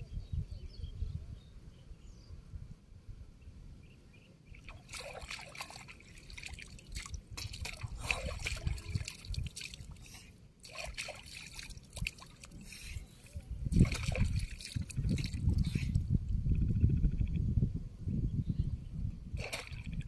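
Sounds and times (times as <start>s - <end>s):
shallow water splashing: 4.6s - 15.9s, 19.4s - 20.0s.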